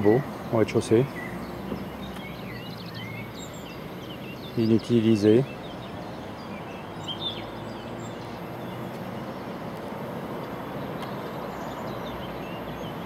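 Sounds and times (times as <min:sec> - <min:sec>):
small bird chirping: 0:00.0 - 0:09.5
rushing outdoor background noise: 0:00.0 - 0:13.0.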